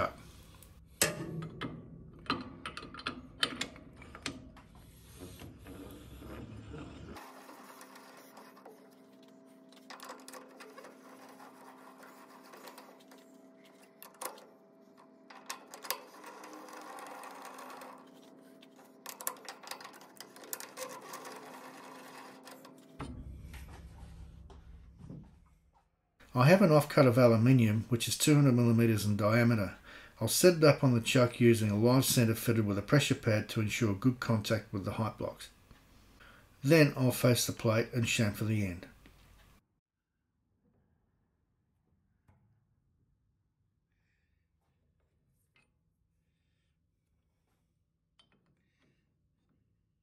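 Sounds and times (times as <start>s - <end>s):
metallic clicking and rattling: 1.0s - 4.5s, 9.8s - 23.1s.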